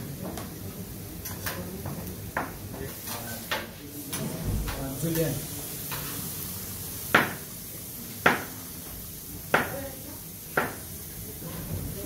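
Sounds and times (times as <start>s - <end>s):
knife chopping on plastic board: 8.2s - 8.5s, 9.5s - 9.8s, 10.6s - 10.8s.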